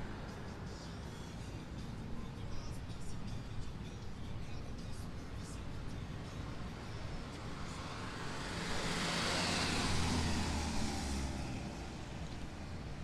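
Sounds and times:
motor vehicle passing: 6.0s - 13.0s.

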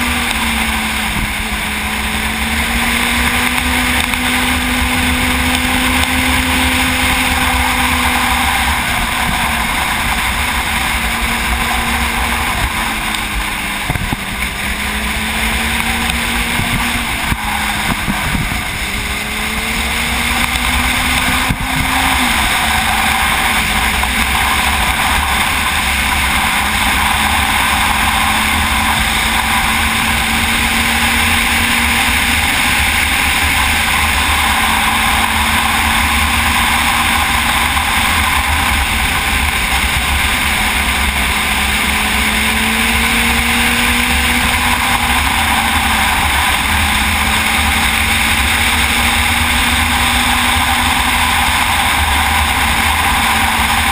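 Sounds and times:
motorcycle engine running: 0.0s - 53.9s
wind rush on microphone: 0.0s - 53.9s.

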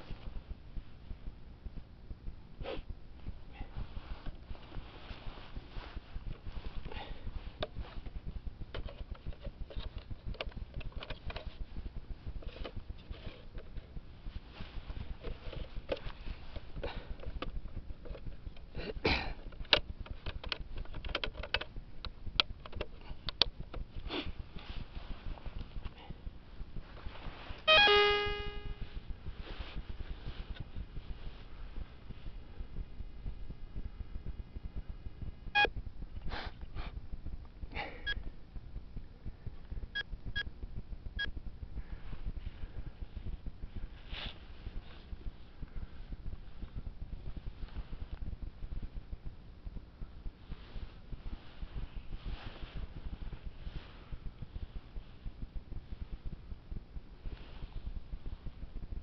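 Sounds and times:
clicks and knocks of handling: 7.6s - 11.6s, 19.4s - 23.9s
metal detector ringing beep: 27.7s - 28.8s.

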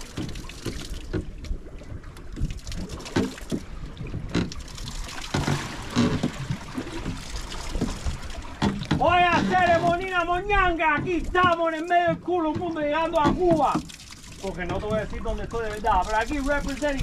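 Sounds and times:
water slapping against boat hull: 0.0s - 17.0s
knocks: 8.6s - 10.1s.

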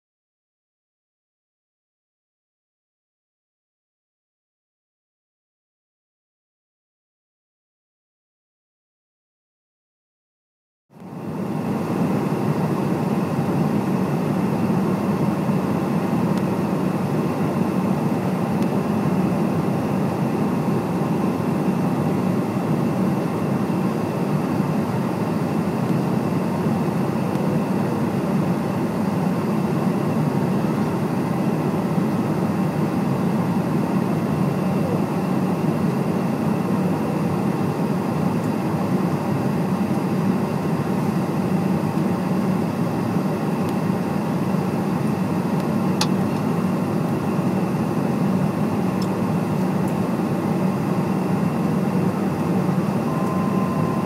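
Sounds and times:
faint engine whine: 10.9s - 54.0s
jet cabin low rumble: 11.0s - 54.0s.

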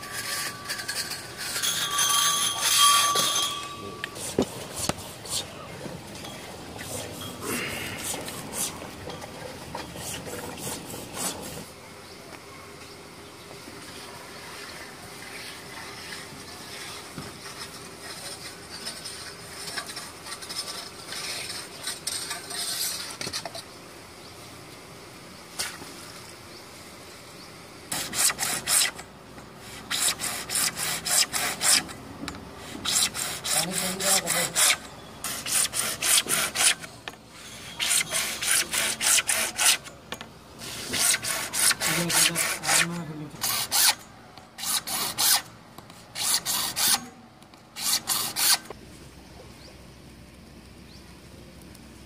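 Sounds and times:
hacksaw cutting plastic pipe: 27.9s - 29.0s, 29.7s - 32.0s, 32.7s - 36.9s, 37.6s - 40.0s, 40.6s - 44.0s, 44.6s - 45.5s, 46.2s - 47.1s, 47.8s - 48.7s.

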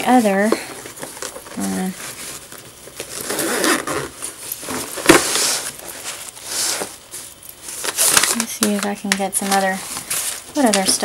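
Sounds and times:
zipper being pulled open: 3.2s - 4.1s.

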